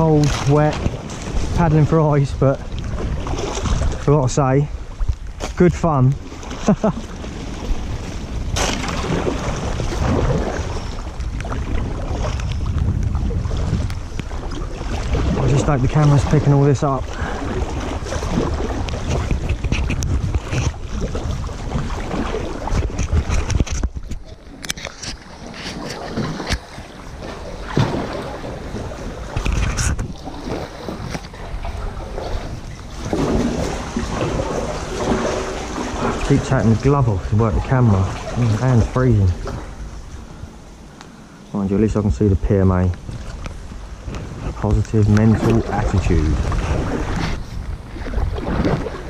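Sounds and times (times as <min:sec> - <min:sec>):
wind rumble on microphone: 0:00.0 - 0:40.9, 0:41.5 - 0:49.0
paddle strokes splashing: 0:00.0 - 0:41.4, 0:42.6 - 0:49.0
sharp splash: 0:08.5 - 0:12.4, 0:25.4 - 0:28.6.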